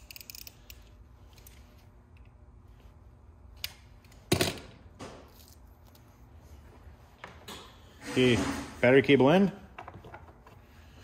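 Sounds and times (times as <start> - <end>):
small parts clicking: 0.0 - 2.3.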